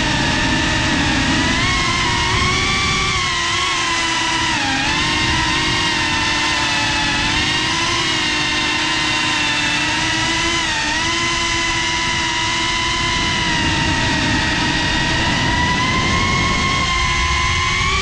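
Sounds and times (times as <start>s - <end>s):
quadcopter motors whining: 0.0s - 18.0s.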